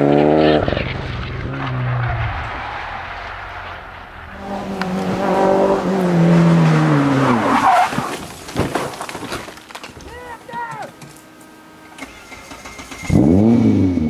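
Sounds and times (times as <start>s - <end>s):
rally car engine revving: 0.0s - 8.0s, 12.5s - 14.0s
tyres skidding: 0.0s - 14.0s.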